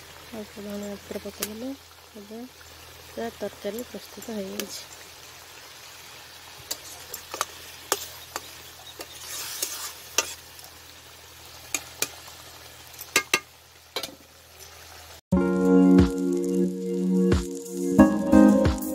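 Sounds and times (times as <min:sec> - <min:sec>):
metal spatula scraping pan: 0:06.7 - 0:10.4.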